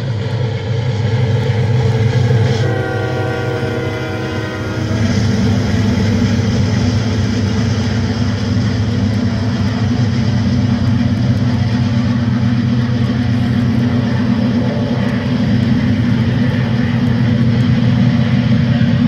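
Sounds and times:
model train diesel rumble: 0.0 - 19.0
diesel horn: 2.4 - 5.6.

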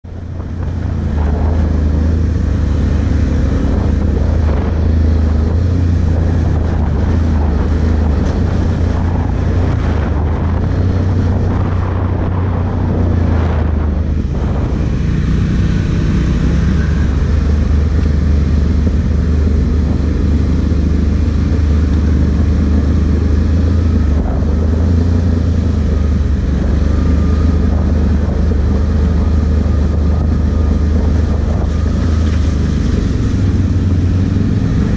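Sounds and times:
atv engine running: 0.0 - 34.9.

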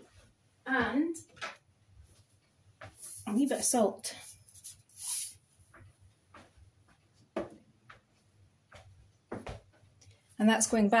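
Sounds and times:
soft hiss: 2.1 - 5.6.

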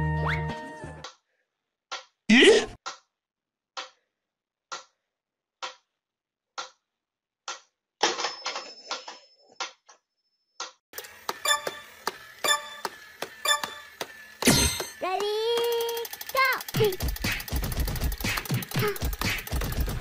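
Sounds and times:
toy rapid clicks with ringing tones: 11.0 - 19.9.

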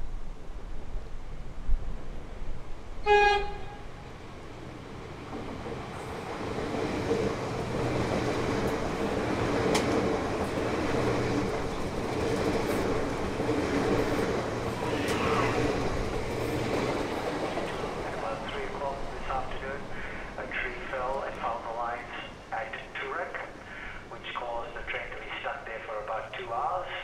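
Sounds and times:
electric train hum: 0.0 - 27.0
train rail noise: 0.6 - 27.0
train horn blast: 3.0 - 4.0.

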